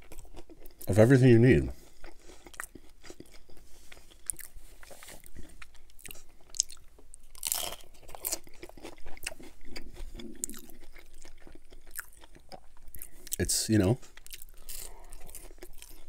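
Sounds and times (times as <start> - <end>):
chewing crunchy taco shell: 0.0 - 16.0.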